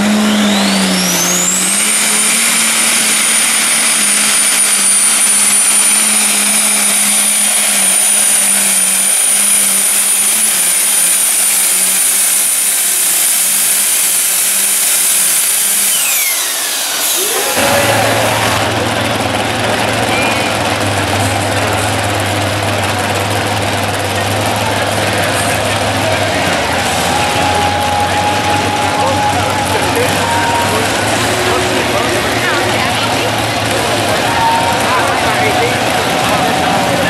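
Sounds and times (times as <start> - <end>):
tractor engine at full throttle: 0.0 - 37.0
turbocharger whine: 0.0 - 37.0.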